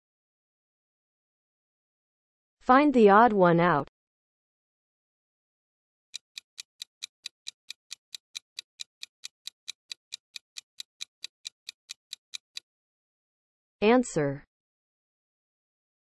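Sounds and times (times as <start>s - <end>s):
clock ticking: 6.2s - 12.6s.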